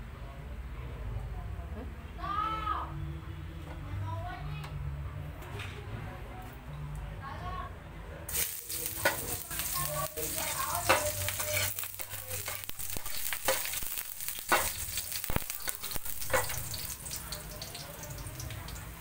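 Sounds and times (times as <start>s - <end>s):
food sizzling in oil: 8.3s - 19.0s
spatula clicking and scraping: 8.9s - 17.3s.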